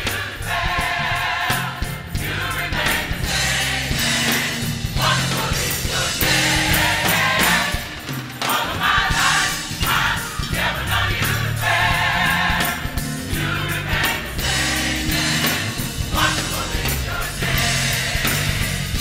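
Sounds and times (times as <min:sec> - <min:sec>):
gospel choir singing: 0:00.0 - 0:19.0
low bass notes: 0:09.1 - 0:19.0.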